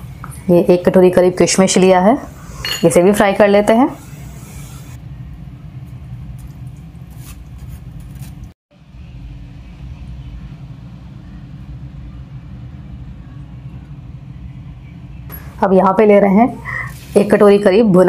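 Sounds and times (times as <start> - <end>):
steady low rumble: 8.7 - 16.8.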